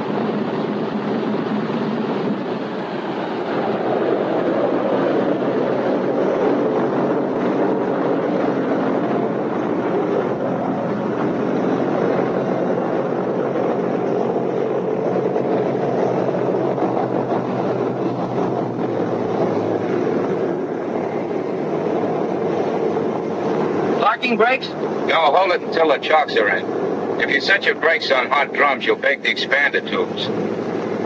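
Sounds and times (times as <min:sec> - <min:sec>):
propeller aircraft engines droning: 0:00.0 - 0:31.0.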